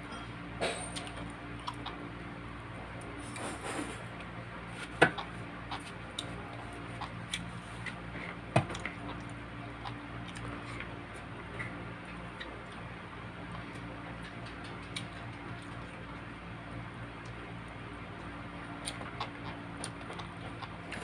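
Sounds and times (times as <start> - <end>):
chewing and lip smacks: 1.0 - 2.1, 5.1 - 8.0, 8.7 - 16.3, 18.1 - 21.0.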